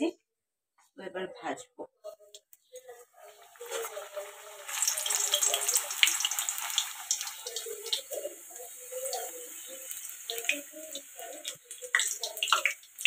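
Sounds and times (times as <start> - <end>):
oil popping: 2.4 - 13.0
food deep-frying in hot oil: 2.8 - 13.0.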